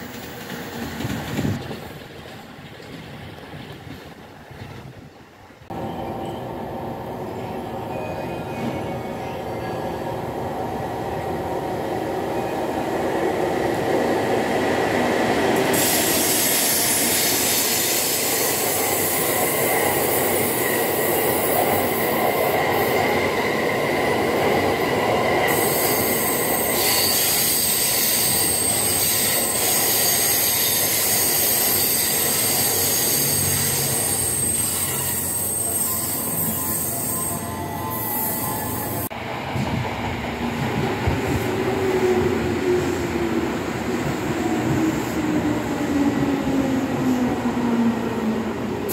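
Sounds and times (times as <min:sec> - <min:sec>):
train wheels rumbling on track: 0:00.0 - 0:48.9
high wheel squeal: 0:25.5 - 0:39.1.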